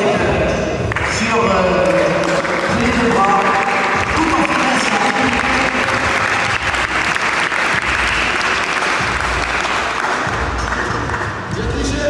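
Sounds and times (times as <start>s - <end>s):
crowd applauding: 0.8s - 11.6s.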